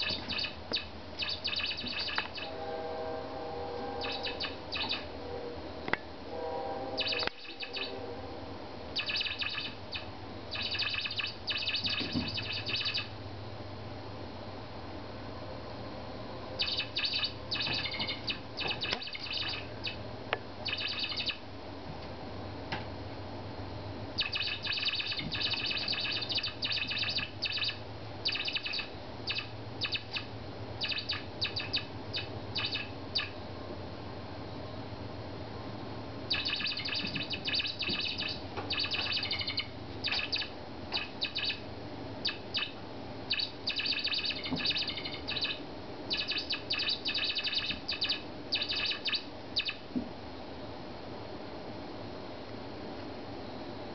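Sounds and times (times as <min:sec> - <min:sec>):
toy mouse squeaking: 0:00.0 - 0:02.5, 0:04.0 - 0:05.0, 0:07.0 - 0:07.9, 0:09.0 - 0:13.1, 0:16.6 - 0:20.0, 0:20.6 - 0:21.4, 0:24.2 - 0:33.4, 0:36.3 - 0:41.6, 0:43.3 - 0:49.8.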